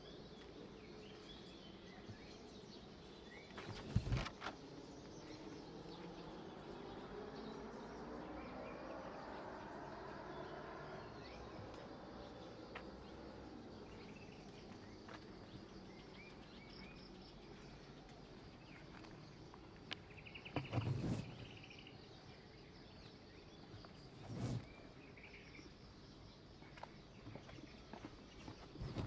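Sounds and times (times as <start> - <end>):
bird chirps: 0.0 - 29.0
faint insect hum: 0.0 - 29.0.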